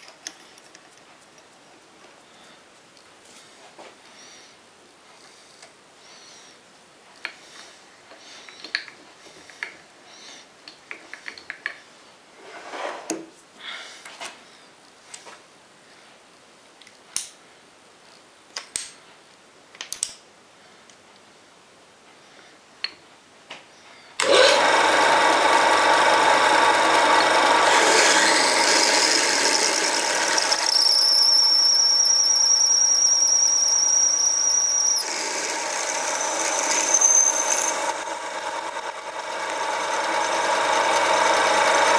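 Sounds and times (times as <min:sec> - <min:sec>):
drill boring into metal: 0:24.2 - 0:41.9
lathe motor running: 0:24.2 - 0:41.9
high steady whine: 0:25.5 - 0:41.9.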